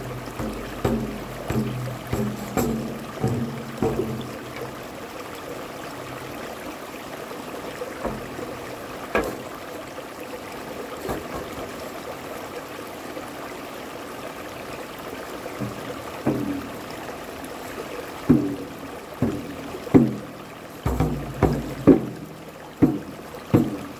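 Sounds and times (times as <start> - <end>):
short knocks: 0.0 - 4.9, 8.0 - 9.6, 11.0 - 11.9, 15.6 - 17.0, 17.8 - 23.9
stream rushing over rocks: 0.0 - 23.9.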